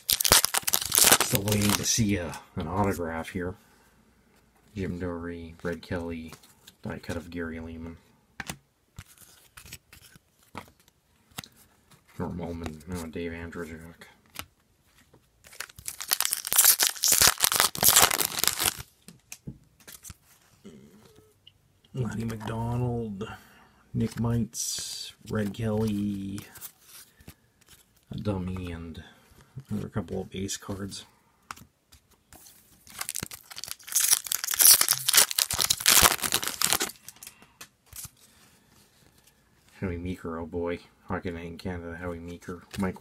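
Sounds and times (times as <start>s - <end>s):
wrapper crinkling and tearing: 0.0s - 2.0s, 15.5s - 18.9s, 32.8s - 38.2s.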